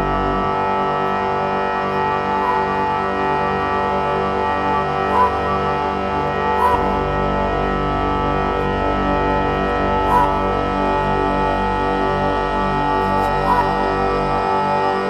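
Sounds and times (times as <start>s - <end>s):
deep bass: 0.0s - 15.0s
sustained tones music: 0.0s - 15.0s.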